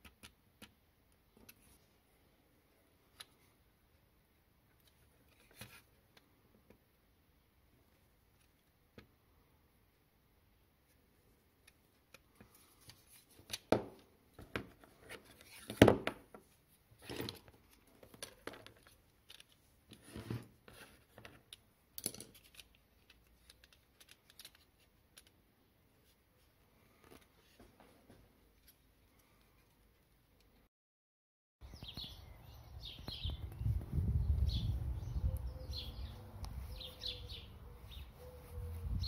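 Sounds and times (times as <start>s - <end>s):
tin toy car being handled: 17.0s - 25.4s
pliers clicking and scraping on metal: 21.5s - 25.4s.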